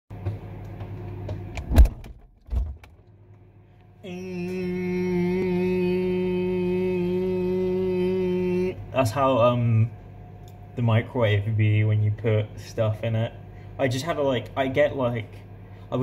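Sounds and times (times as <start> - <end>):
low hum: 0.2 - 16.0
man droning with his voice: 4.0 - 9.9.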